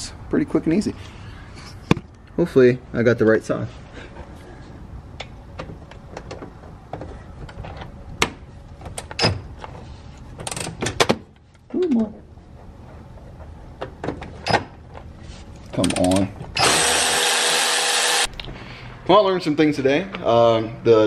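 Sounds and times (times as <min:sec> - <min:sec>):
electric ratchet motor whirring: 0:16.0 - 0:18.3.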